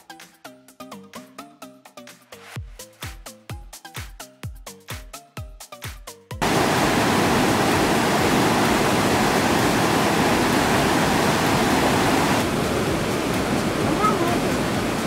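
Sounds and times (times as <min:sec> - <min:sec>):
electronic music with beat: 0:01.0 - 0:06.3
waterfall rushing: 0:06.4 - 0:15.0.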